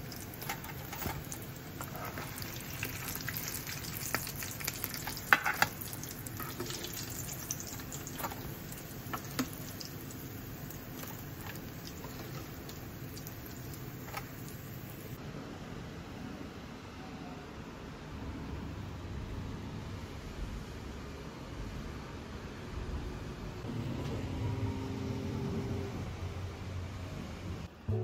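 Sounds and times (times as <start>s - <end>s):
food deep-frying in oil: 0.0s - 15.2s
oil crackles and pops: 0.0s - 15.2s.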